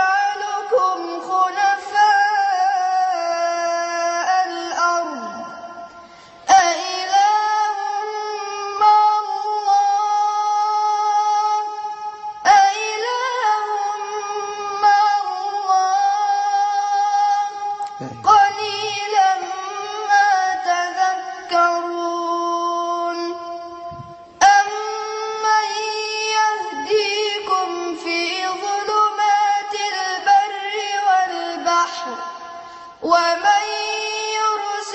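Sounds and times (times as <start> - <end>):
boy reciting melodically: 0.0 - 34.9.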